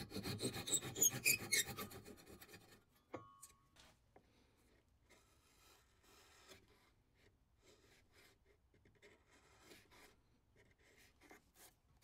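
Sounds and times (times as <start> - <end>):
chisel scraping wood: 0.0 - 2.8.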